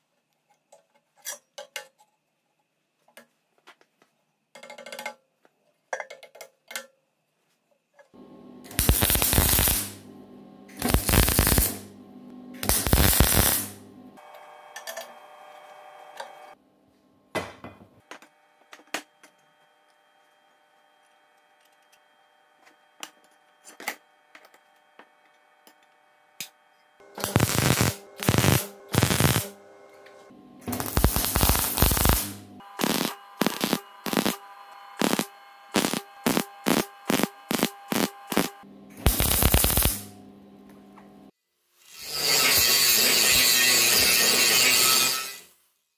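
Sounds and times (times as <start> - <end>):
arc welder crackling: 8.2 - 14.2, 26.4 - 40.2.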